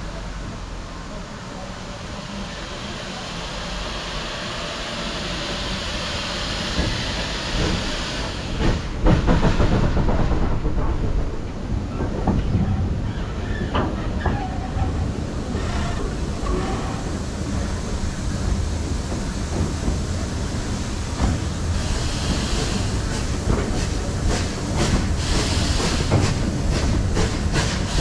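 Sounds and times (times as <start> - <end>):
low train rumble: 0.0 - 28.0
hiss of escaping steam: 2.0 - 8.8, 15.6 - 28.0
train clanks: 6.4 - 28.0
steam locomotive exhaust beats: 15.5 - 28.0.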